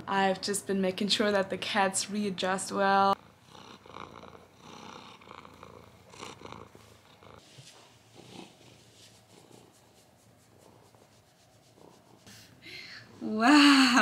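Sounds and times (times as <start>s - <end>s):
cat purring softly: 3.0s - 12.5s.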